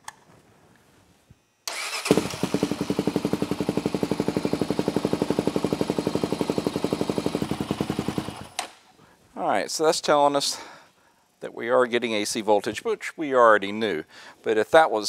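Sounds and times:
engine starting and idling: 0:01.7 - 0:08.7.

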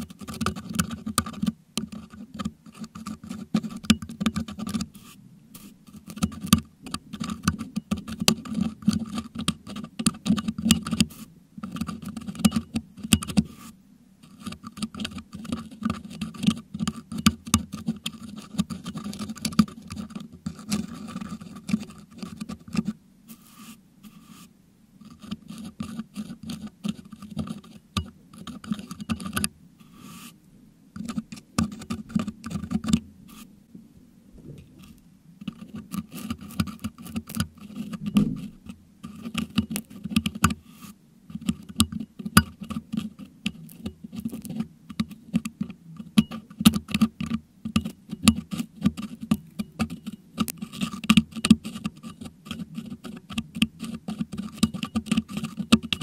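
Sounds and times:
metal hook scraping microphone grille: 0:34.4 - 0:56.0.

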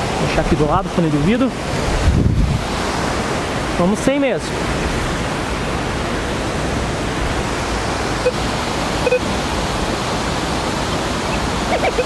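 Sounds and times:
waterfall rushing: 0:00.0 - 0:12.0
metal detector beeps: 0:08.2 - 0:08.4, 0:09.0 - 0:09.3.

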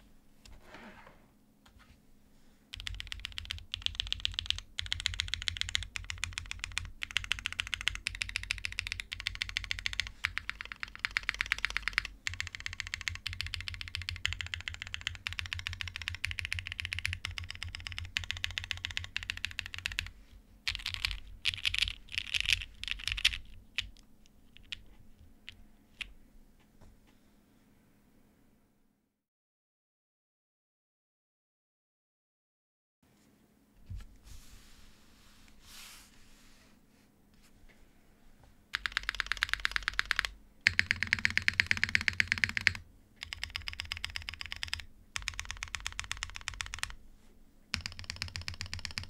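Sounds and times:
mechanical keyboard typing: 0:02.7 - 0:20.1, 0:20.7 - 0:24.0, 0:24.6 - 0:24.8, 0:38.7 - 0:47.0, 0:47.7 - 0:49.0.

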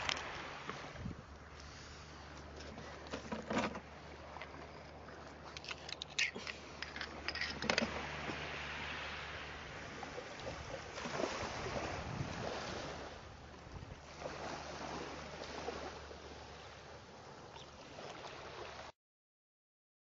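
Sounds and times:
wind on microphone: 0:00.0 - 0:01.4, 0:07.3 - 0:16.6
waves washing ashore: 0:00.0 - 0:18.9.

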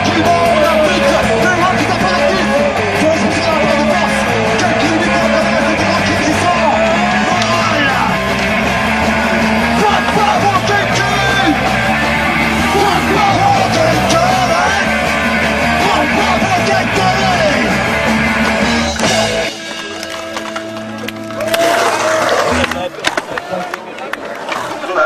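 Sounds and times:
sung and yelled vocals: 0:00.0 - 0:19.4
punk rock band playing: 0:00.0 - 0:23.0.

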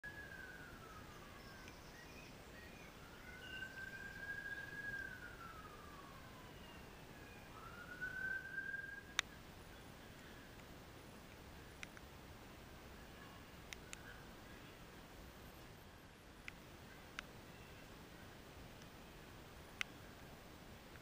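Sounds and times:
faint siren wailing: 0:00.0 - 0:10.6.

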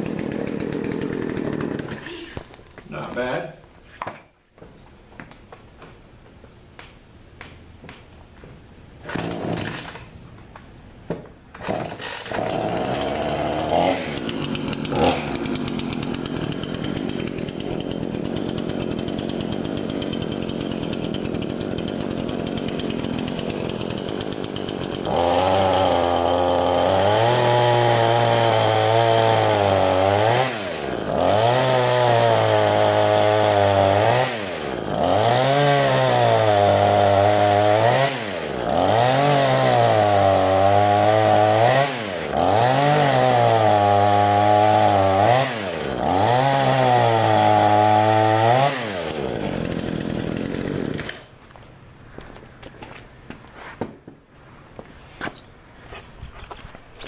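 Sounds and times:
chainsaw starting and idling: 0:00.0 - 0:02.8, 0:09.0 - 0:10.4, 0:11.5 - 0:51.6
chainsaw cutting log: 0:00.0 - 0:03.3, 0:09.0 - 0:10.4, 0:11.5 - 0:51.7.

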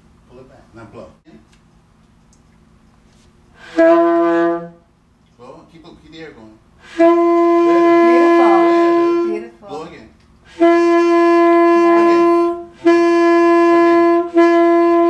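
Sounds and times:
saxophone long tones: 0:03.6 - 0:04.9, 0:06.8 - 0:09.8, 0:10.5 - 0:15.0.

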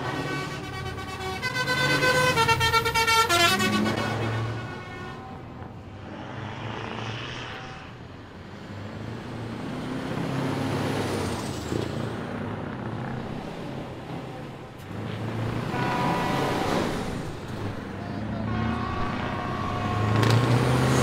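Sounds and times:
diesel truck engines: 0:00.0 - 0:21.0.

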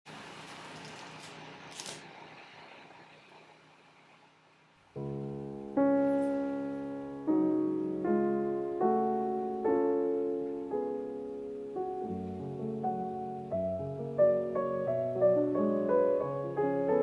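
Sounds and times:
slow gentle piano chords: 0:04.9 - 0:17.0.

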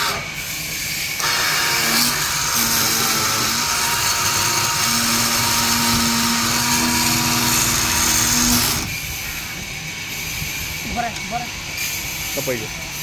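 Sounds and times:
chainsaw cutting wood: 0:01.2 - 0:09.0.

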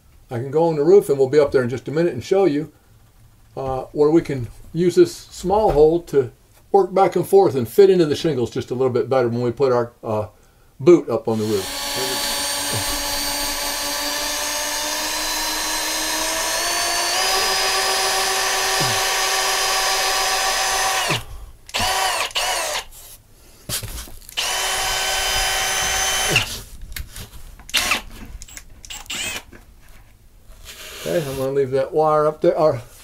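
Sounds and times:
cordless drill whining: 0:11.4 - 0:23.0, 0:24.3 - 0:26.7, 0:27.7 - 0:29.6, 0:30.6 - 0:31.5.

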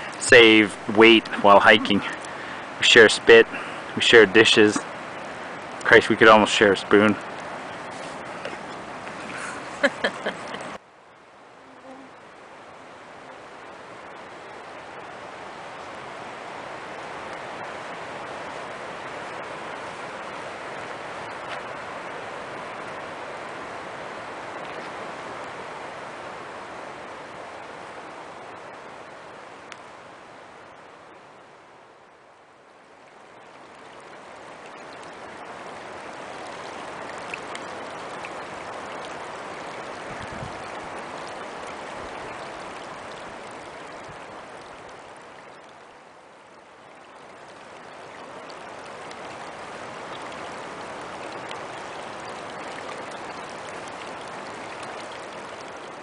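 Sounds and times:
creek babbling over stones: 0:00.0 - 0:56.0.

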